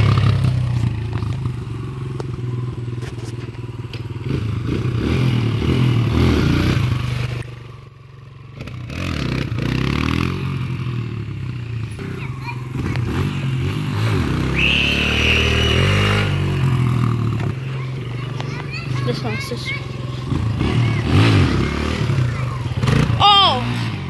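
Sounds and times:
dirt bike engine revving: 4.2s - 7.6s, 8.5s - 24.0s.

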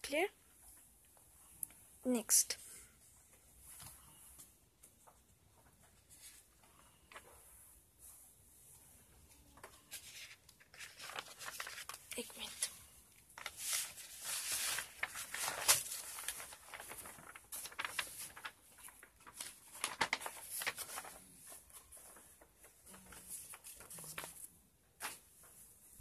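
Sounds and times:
paper rustling and crinkling: 3.6s - 7.5s, 9.2s - 26.0s.

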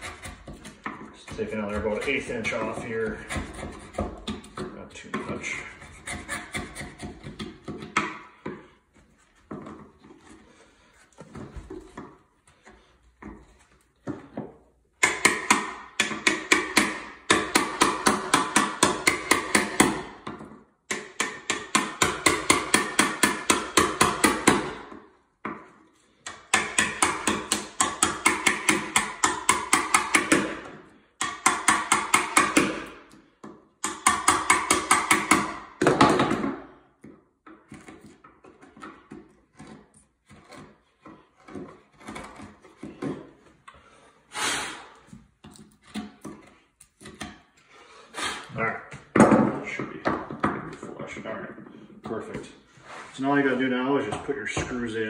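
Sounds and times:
hammer striking chisel: 0.0s - 8.7s, 15.0s - 43.3s.

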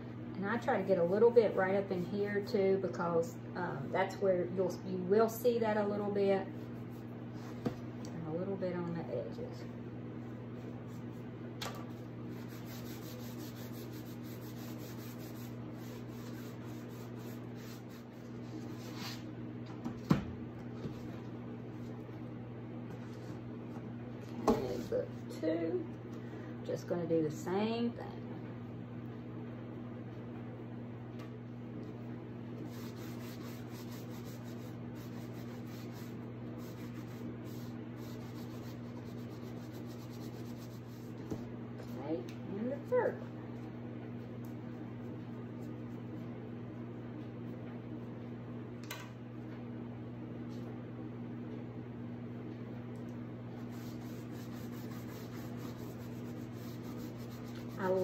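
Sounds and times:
steady low hum: 0.0s - 58.0s
cloth rag rubbing: 12.3s - 19.2s, 32.7s - 41.2s, 53.6s - 58.0s.

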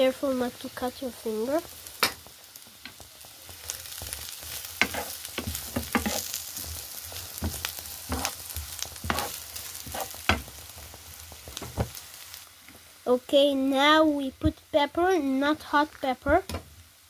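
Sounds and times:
onions sizzling in frying pan: 0.0s - 17.0s
spatula scraping and knocking pan: 3.8s - 10.6s.

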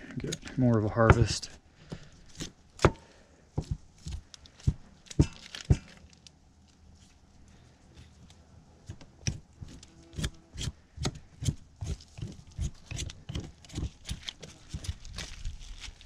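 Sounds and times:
knife scraping meat off bone: 9.3s - 15.3s.

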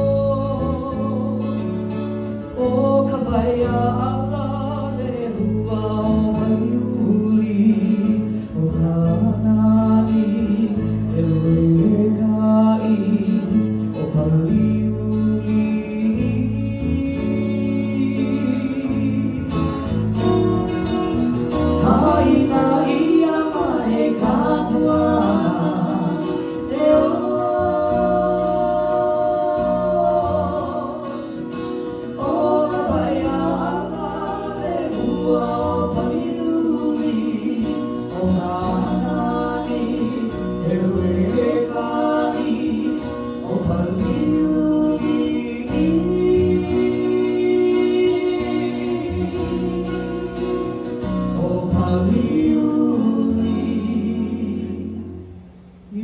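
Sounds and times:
acoustic guitar strumming: 0.0s - 56.0s
person singing long notes: 21.8s - 31.4s.

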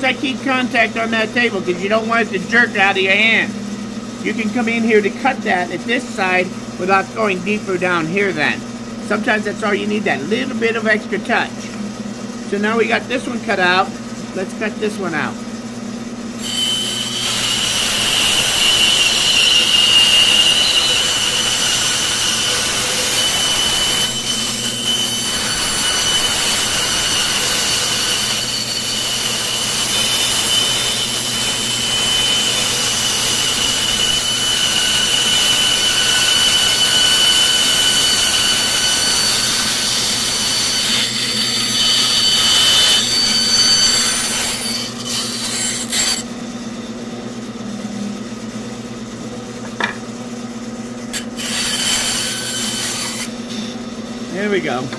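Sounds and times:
bandsaw cutting wood: 16.4s - 46.3s, 51.1s - 53.4s.

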